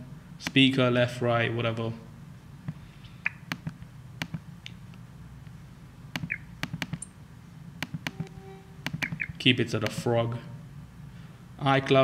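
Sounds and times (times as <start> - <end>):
computer clicks: 6.2 - 7.1, 7.8 - 10.0.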